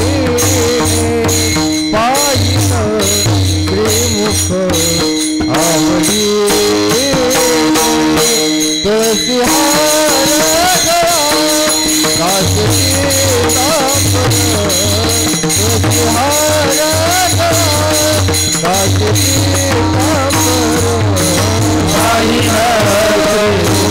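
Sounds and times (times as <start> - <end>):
man singing: 0.0 - 23.9
small hand cymbals: 0.0 - 23.9
drum: 9.3 - 23.9.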